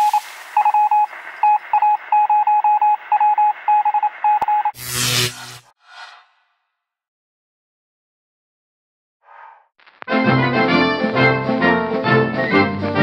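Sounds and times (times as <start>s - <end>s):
morse code beeps: 0.0s - 4.8s.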